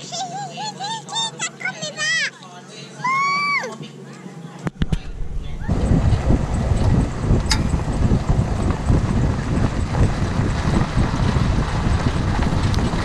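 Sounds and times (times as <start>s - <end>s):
wind buffeting microphone: 4.8s - 13.0s
tyres crunching over gravel: 5.8s - 13.0s.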